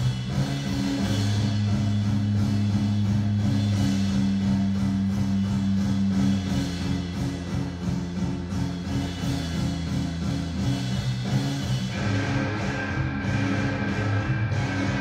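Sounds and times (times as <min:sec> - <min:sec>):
music with deep bass notes: 0:00.0 - 0:15.0.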